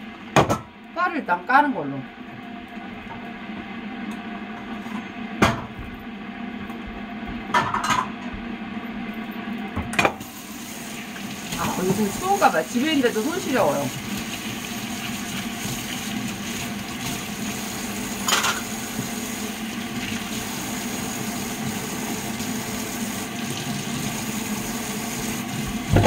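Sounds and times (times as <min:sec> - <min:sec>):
tap water running into sink: 0:10.2 - 0:26.0.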